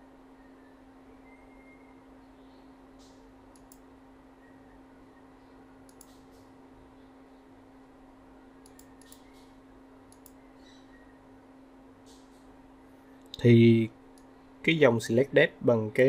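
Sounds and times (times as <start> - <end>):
steady low hum: 0.0 - 16.0
computer mouse and keyboard clicks: 3.0 - 3.8, 5.9 - 6.5, 8.6 - 9.5, 10.1 - 10.4.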